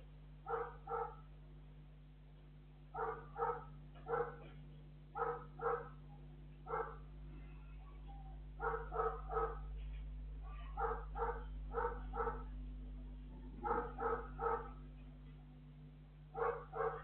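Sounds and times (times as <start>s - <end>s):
steady electrical hum: 0.0s - 17.0s
small dogs barking: 0.4s - 1.3s, 2.9s - 7.1s, 8.6s - 9.8s, 10.4s - 12.6s, 13.5s - 14.9s, 16.3s - 17.0s.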